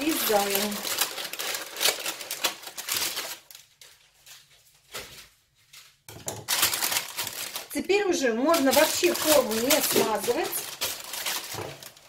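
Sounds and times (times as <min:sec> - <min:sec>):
baking paper rustling and crinkling: 0:00.0 - 0:12.0
scissors cutting paper: 0:06.5 - 0:07.6, 0:08.5 - 0:12.0.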